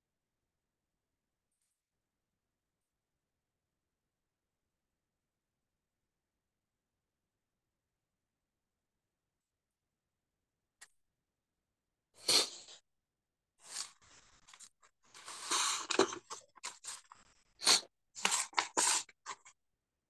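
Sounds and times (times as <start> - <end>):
rustling and handling noise: 13.6 - 17.6, 18.2 - 19.5.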